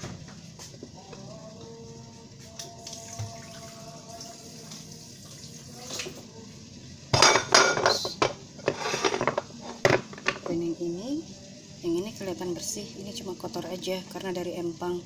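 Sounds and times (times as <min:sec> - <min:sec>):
water splashing in sink: 0:02.6 - 0:06.2.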